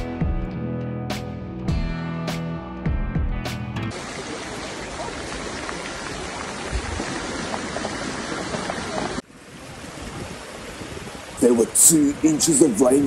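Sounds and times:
floodwater rushing: 0:03.9 - 0:13.0.

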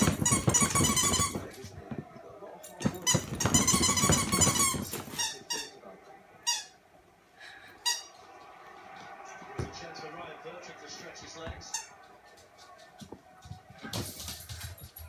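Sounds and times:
squeaky dog toy squeaking: 0:00.0 - 0:01.4, 0:03.0 - 0:05.7.

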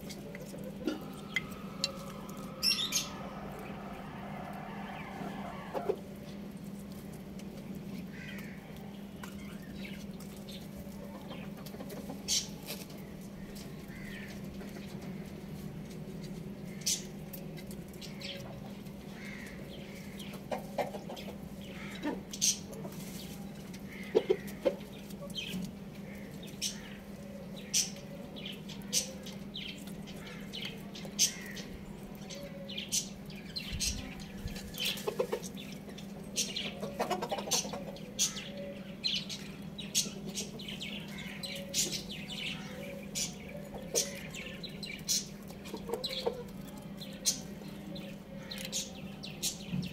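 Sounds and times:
chicken clucking: 0:00.0 - 0:07.6, 0:10.0 - 0:13.0, 0:19.8 - 0:25.8, 0:26.5 - 0:49.9.

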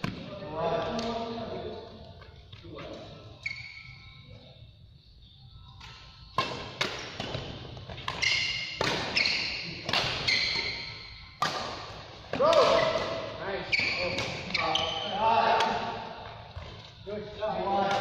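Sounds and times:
shoes squeaking on court floor: 0:02.2 - 0:04.5, 0:05.7 - 0:15.4
racquets striking shuttlecock: 0:05.8 - 0:13.3.

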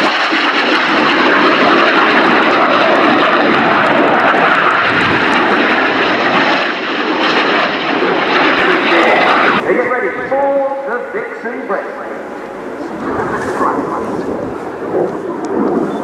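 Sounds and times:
jet engine flying past: 0:00.0 - 0:16.0.

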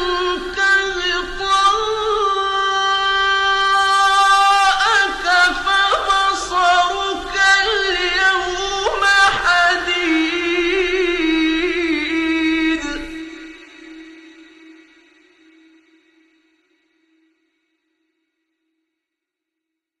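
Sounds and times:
person reciting melodically: 0:00.0 - 0:14.4.

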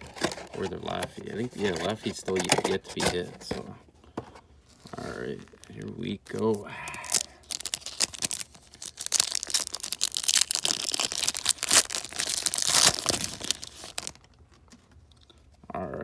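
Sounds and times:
foil wrapper crinkling and tearing: 0:04.8 - 0:14.5.

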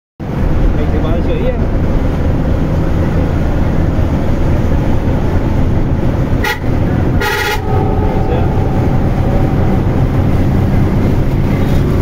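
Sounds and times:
vehicle rumble: 0:00.2 - 0:12.0
horn toots: 0:06.3 - 0:11.9.

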